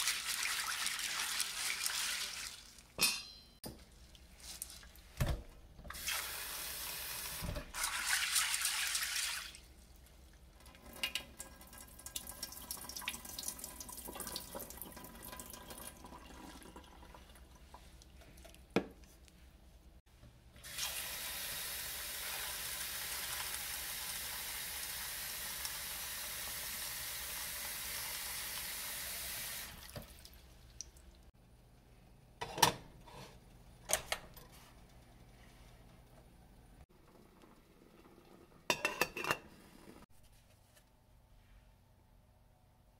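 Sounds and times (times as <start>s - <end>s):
beans sloshing in water: 0.0s - 3.0s.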